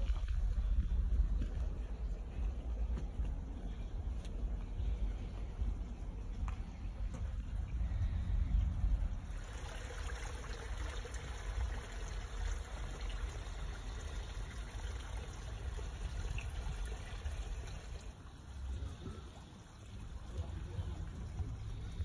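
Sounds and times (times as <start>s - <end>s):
low rumble: 0.0s - 9.5s
water trickling over rocks: 6.0s - 22.0s.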